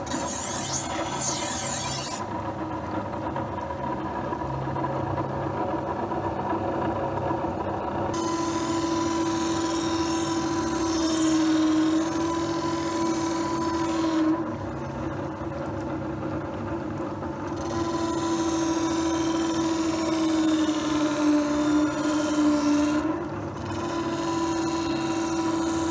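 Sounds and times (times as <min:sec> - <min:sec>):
knife scraping on grinding wheel: 0:00.0 - 0:02.4, 0:08.2 - 0:15.0, 0:17.4 - 0:25.9
sharpening machine motor hum: 0:00.0 - 0:02.4, 0:08.1 - 0:15.0, 0:17.5 - 0:25.9.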